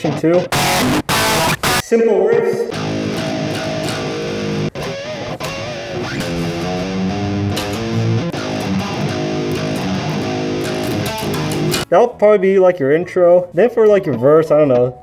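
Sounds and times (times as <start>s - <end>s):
distorted electric guitar riff: 0.0s - 11.9s.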